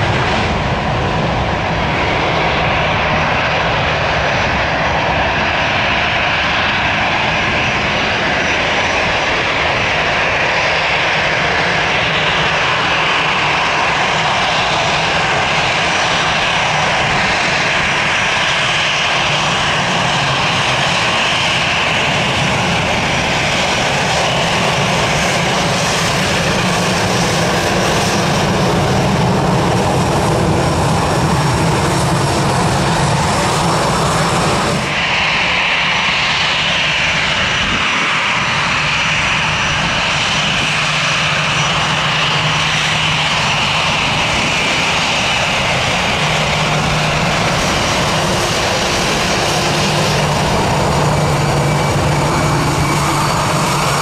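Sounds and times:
jet engines rumbling and whining: 0.0 - 54.0.

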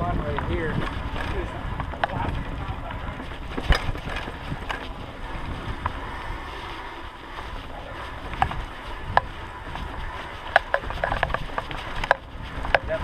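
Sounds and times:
bike clicks and rattles: 0.0 - 13.0
bike tyres rumbling on dirt: 0.0 - 13.0
wind noise on microphone: 0.0 - 13.0.

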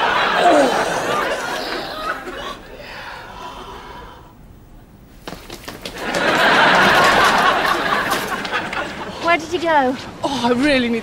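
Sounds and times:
studio audience laughing: 0.0 - 2.6, 6.0 - 9.1.

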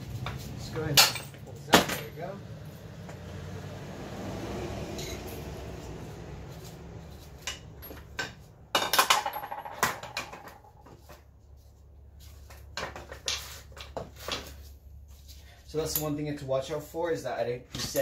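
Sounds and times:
metal parts clinking and knocking: 0.9 - 2.3, 7.4 - 11.1.

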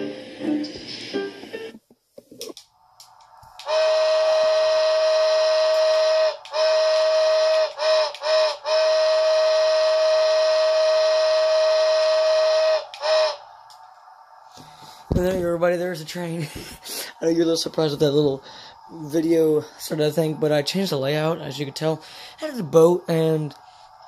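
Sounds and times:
steam whistle blasts: 3.6 - 13.6.

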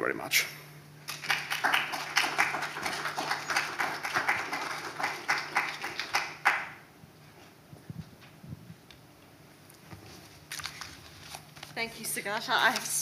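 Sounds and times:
audience applauding: 1.1 - 6.8.

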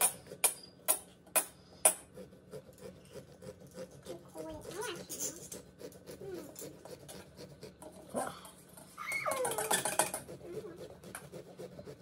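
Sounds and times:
saw rasping through pumpkin: 0.0 - 12.0
high whining cry: 8.9 - 10.9.

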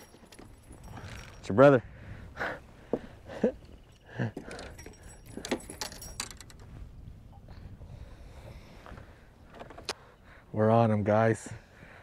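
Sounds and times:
fishing tackle clinking: 0.0 - 1.8, 3.3 - 6.7.

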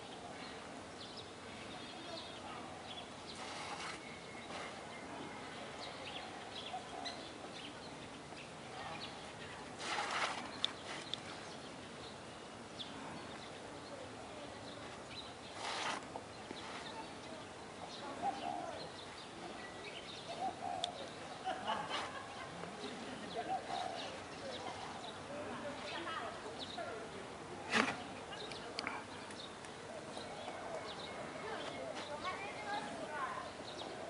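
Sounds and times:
steady hiss: 0.0 - 6.6
bird chirps and coos: 0.0 - 34.0
rustling swishes: 3.3 - 5.0, 9.2 - 11.5, 14.8 - 17.2.

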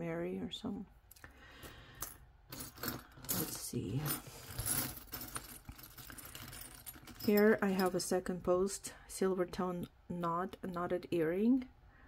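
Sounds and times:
metal jewelry clinking: 1.9 - 8.1.

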